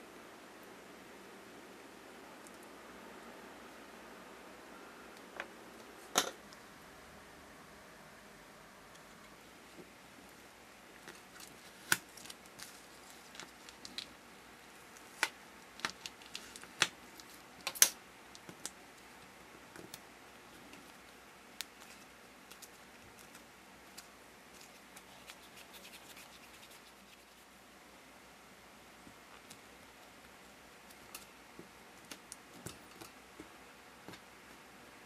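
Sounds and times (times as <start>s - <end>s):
faint scratching and ticking: 18.4s - 27.7s.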